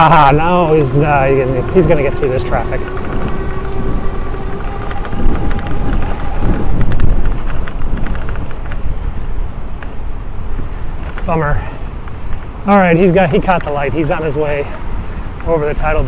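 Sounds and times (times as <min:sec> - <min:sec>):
road traffic passing: 0:00.0 - 0:16.0
wind rumbling on microphone: 0:00.0 - 0:16.0
small clicks and rattles: 0:04.5 - 0:10.0.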